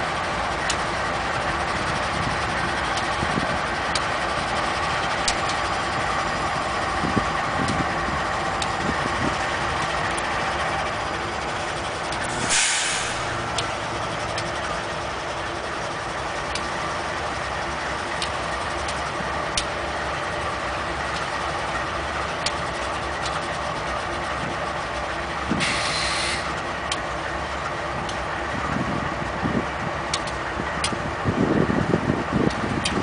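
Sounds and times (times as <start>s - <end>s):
low uneven rumbles: 0.0s - 25.6s
locomotive engine hum: 0.0s - 33.0s
air hiss: 12.3s - 13.4s, 25.6s - 26.5s
sharp clicks: 30.1s - 31.0s.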